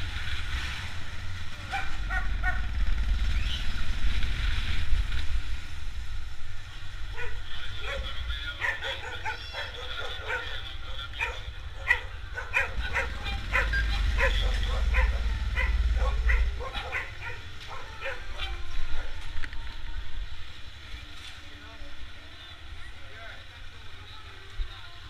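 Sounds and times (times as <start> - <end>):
motorcycle engine rumbling: 0.0 - 25.0
dogs barking: 1.6 - 2.8, 7.1 - 19.2.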